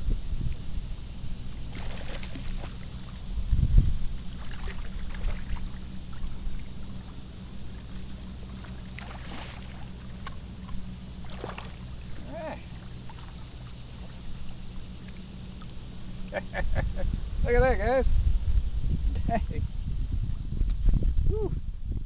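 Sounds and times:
wind buffeting microphone: 0.0s - 8.2s, 15.9s - 22.0s
steady low hum: 0.0s - 22.0s
fish splashing: 1.7s - 3.2s, 4.3s - 6.8s, 7.6s - 15.8s.

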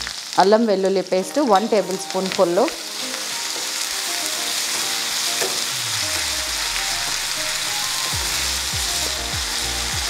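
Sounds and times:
paste sizzling in hot oil: 0.0s - 10.0s
spatula stirring: 3.0s - 5.8s
background music with low beat: 4.8s - 10.0s.

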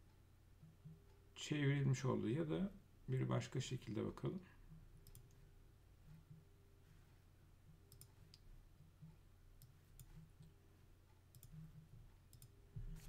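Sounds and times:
low steady hum: 0.0s - 13.0s
computer mouse clicks: 5.0s - 5.4s, 7.9s - 8.5s, 9.6s - 10.6s, 11.3s - 11.7s, 12.3s - 12.6s.

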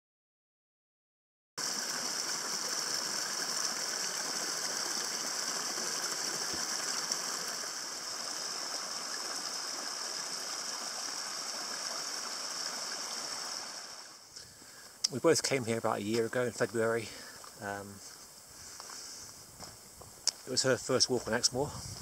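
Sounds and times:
stream splashing over stones: 1.6s - 14.2s.

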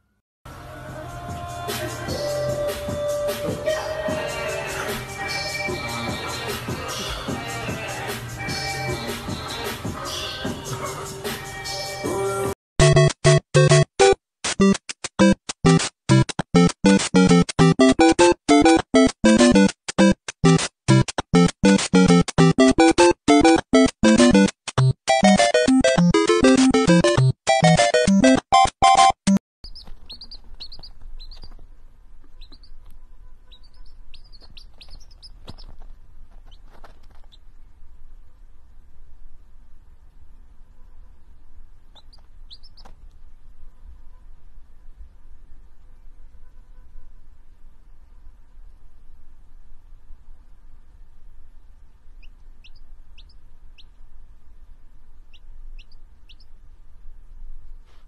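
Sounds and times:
staccato music notes: 12.8s - 29.4s
baby chick peeping: 25.1s - 37.6s, 41.2s - 44.1s, 51.6s - 54.3s, 55.1s - 56.8s
low steady hum: 30.0s - 58.0s.

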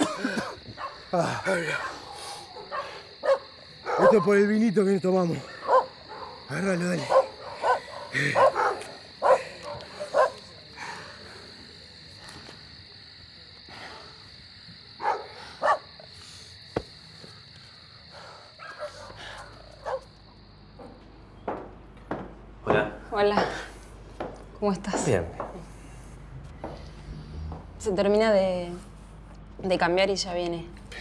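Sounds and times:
high-pitched night ambience whine: 0.0s - 31.0s
dog barking: 0.8s - 1.0s, 1.7s - 4.4s, 5.5s - 6.4s, 7.1s - 10.4s, 15.0s - 15.9s, 18.6s - 20.1s.

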